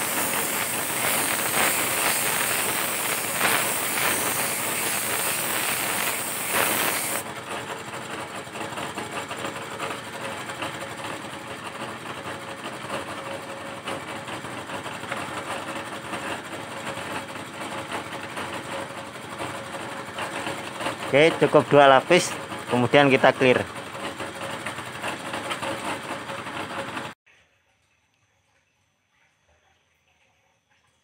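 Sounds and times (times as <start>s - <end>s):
paint spray gun hissing: 0.0s - 7.2s
air compressor humming: 0.0s - 27.2s.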